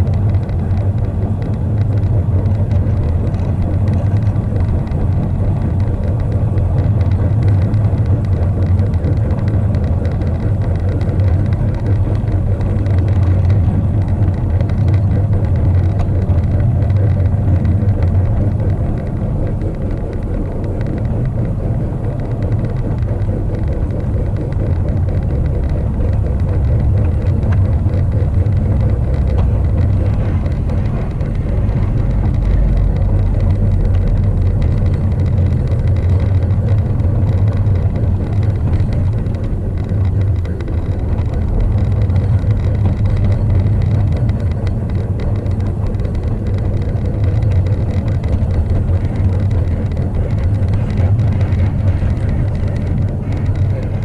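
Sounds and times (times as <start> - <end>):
model train wheels rolling on track: 0.0 - 54.0.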